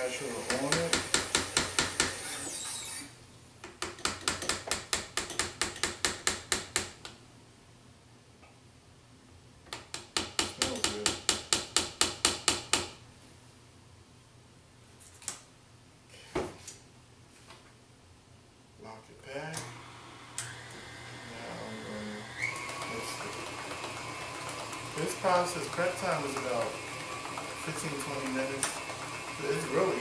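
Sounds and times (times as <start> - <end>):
mixer beater clicking: 22.3 - 30.0.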